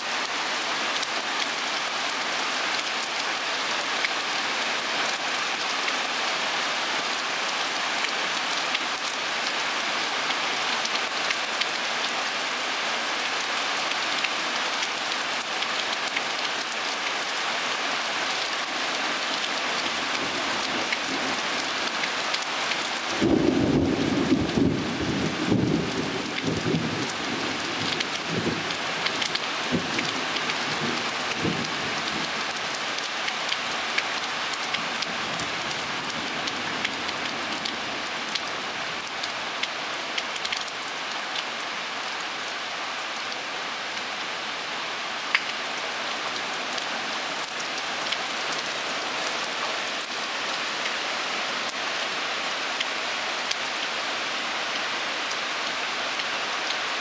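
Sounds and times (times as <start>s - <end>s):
heavy rain pouring: 0.0s - 57.0s
raindrop ticks: 27.8s - 39.8s, 40.4s - 41.5s, 45.3s - 45.6s.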